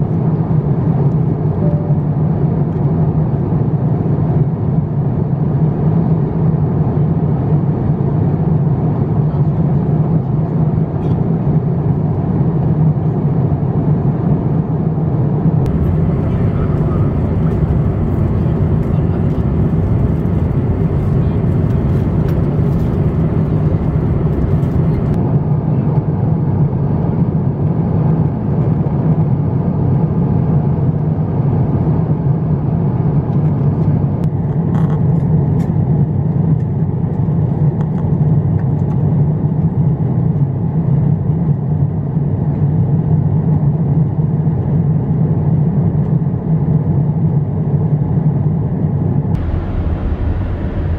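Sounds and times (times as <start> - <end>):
airplane cabin noise: 15.6 - 26.3, 49.3 - 50.9.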